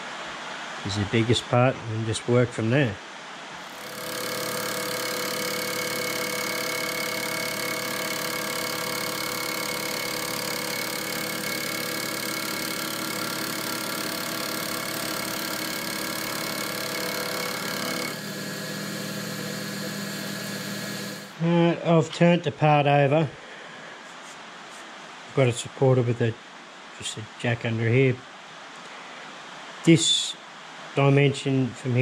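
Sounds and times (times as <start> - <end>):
mill drill spindle running: 3.6 - 21.4
cutter facing metal casting: 3.7 - 21.4.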